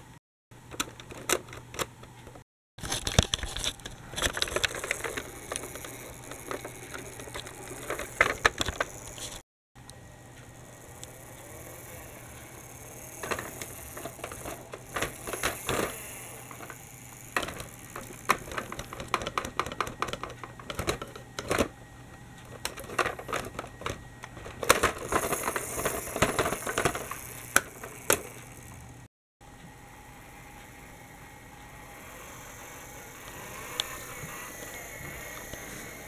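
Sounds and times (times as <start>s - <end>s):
plastic toy clicking and clattering: 2.8s - 9.4s, 10.9s - 21.7s, 22.4s - 28.8s, 32.6s - 36.0s.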